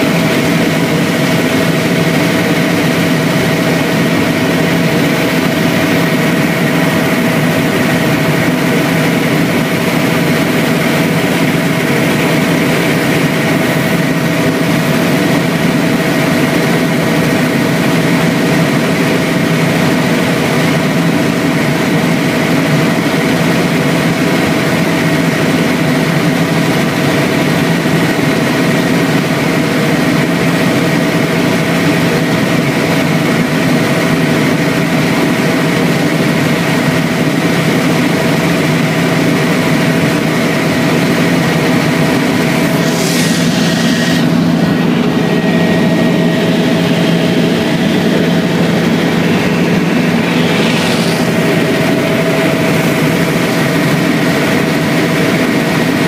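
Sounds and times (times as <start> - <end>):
helicopter engine and rotor drone: 0.0 - 56.0
constant whining tones: 40.8 - 55.9.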